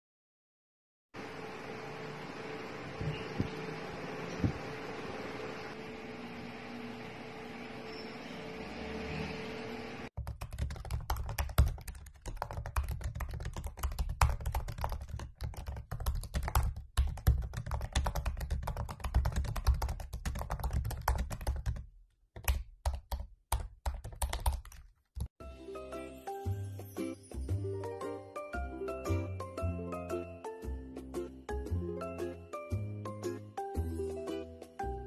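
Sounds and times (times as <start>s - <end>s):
typing on laptop keyboard: 10.2s - 25.3s.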